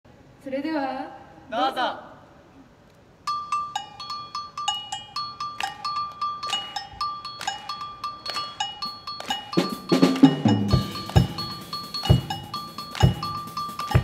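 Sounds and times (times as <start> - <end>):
two-tone percussion bell: 3.3 - 14.0.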